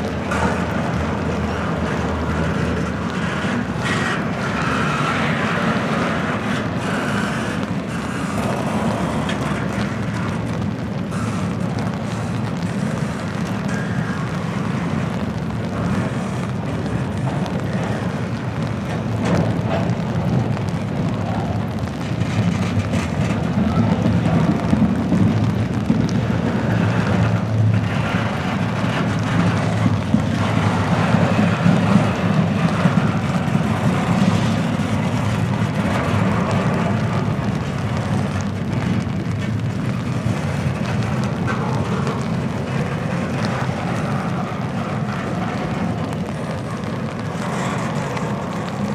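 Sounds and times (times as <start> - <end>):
train wheels rumbling on rails: 0.0 - 48.9.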